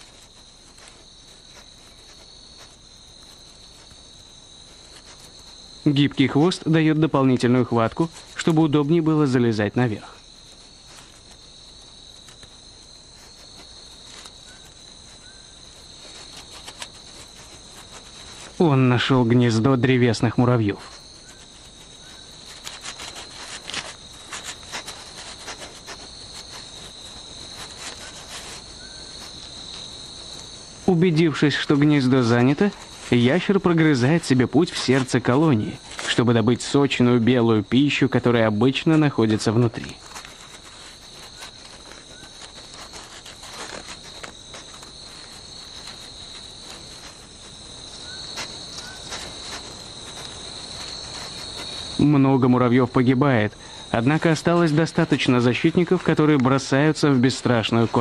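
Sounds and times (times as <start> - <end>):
crickets chirping: 0.0 - 58.0
night insects trilling: 0.0 - 58.0
pangolin scratching at ant nest: 0.0 - 58.0.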